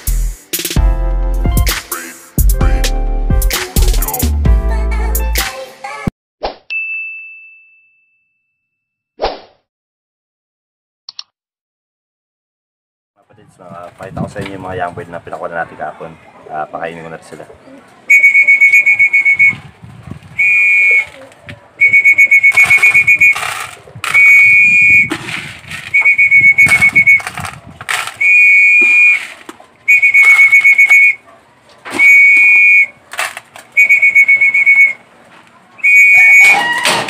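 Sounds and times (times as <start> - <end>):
trilling whistle blasts: 18.1 - 19.6, 20.4 - 21.2, 21.8 - 25.2, 25.9 - 27.3, 28.2 - 29.3, 29.9 - 31.2, 31.9 - 33.0, 33.8 - 35.0, 35.8 - 37.0.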